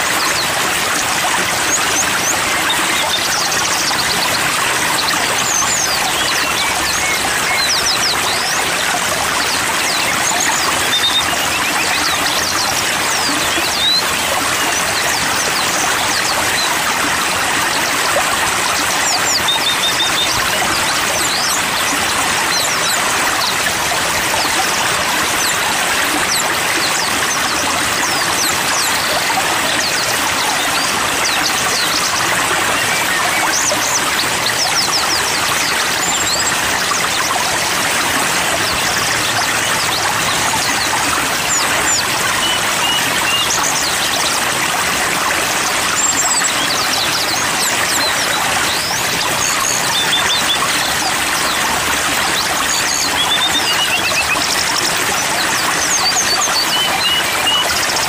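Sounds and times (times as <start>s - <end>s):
rushing stream water: 0.0s - 58.0s
small birds chirping: 0.0s - 58.0s.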